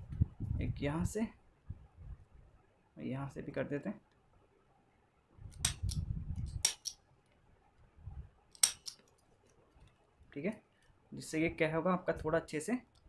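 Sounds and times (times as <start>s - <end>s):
stapler snapping shut: 8.6s - 9.0s.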